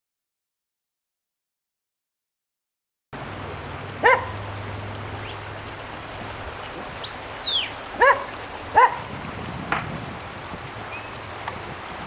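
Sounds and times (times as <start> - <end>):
dog barking: 4.0 - 4.4, 8.0 - 9.1.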